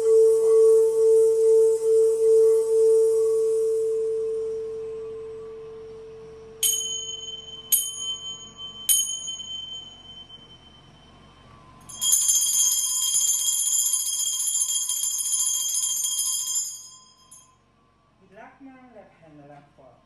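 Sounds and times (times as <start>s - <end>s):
singing bowl humming: 0.0s - 18.1s
bell jingling: 6.6s - 11.1s, 11.9s - 17.6s
hand bell struck: 6.6s - 17.6s.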